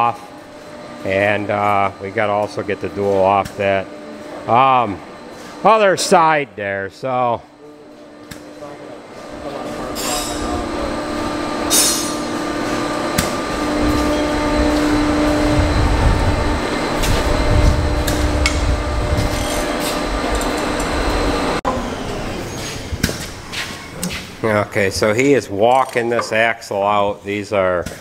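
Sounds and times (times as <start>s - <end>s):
machine running with rumble: 9.0s - 25.0s.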